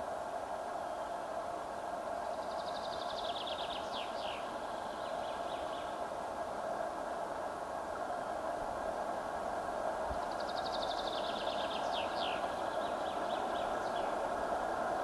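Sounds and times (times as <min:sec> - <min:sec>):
songbird trilling: 0:10.3 - 0:14.2.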